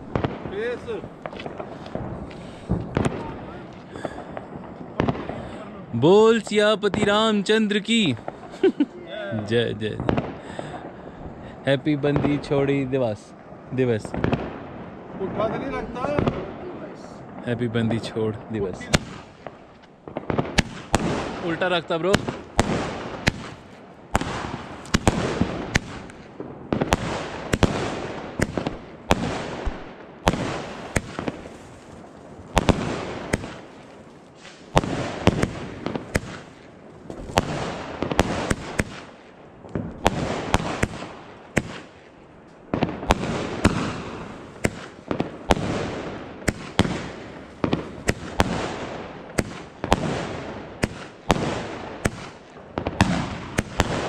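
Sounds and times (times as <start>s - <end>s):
firecrackers banging and crackling: 0.0s - 54.0s
fireworks hissing: 26.9s - 39.3s.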